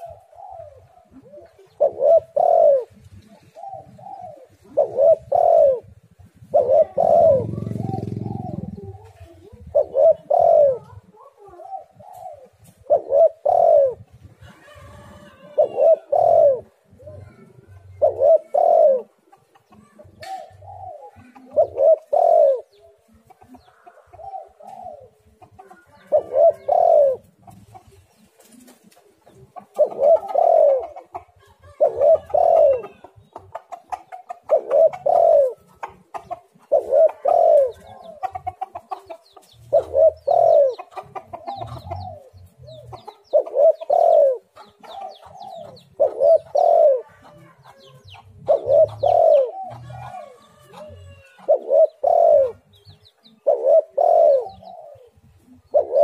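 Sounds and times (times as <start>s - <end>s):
dove cooing: 0.0s - 56.0s.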